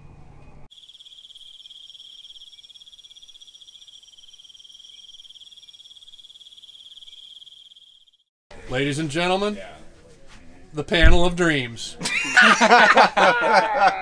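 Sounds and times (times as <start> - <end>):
crickets chirping: 0.7 - 8.3.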